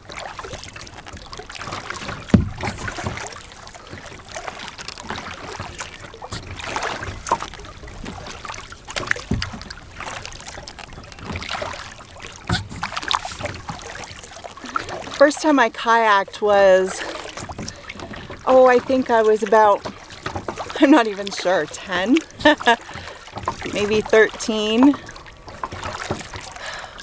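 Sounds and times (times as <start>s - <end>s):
paddle splashing in water: 0.0s - 27.0s
water dripping: 0.0s - 27.0s
dull thumps: 2.2s - 3.3s.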